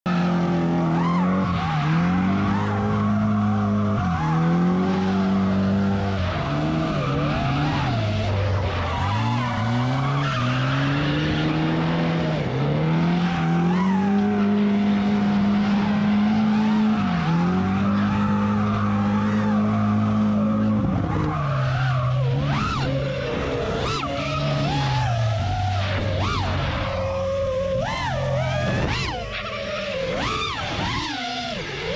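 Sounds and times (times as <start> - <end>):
car engine revving: 0.1 - 31.9
tires squealing: 0.1 - 31.9.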